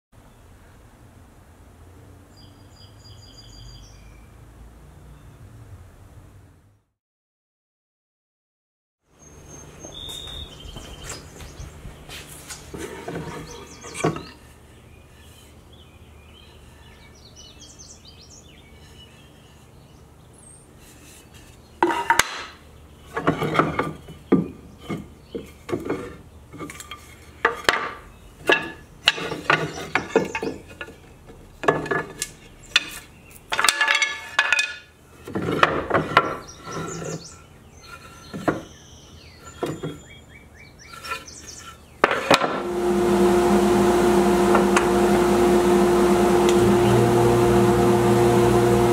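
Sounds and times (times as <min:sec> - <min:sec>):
jointer motor humming: 0:42.3 - 0:48.9.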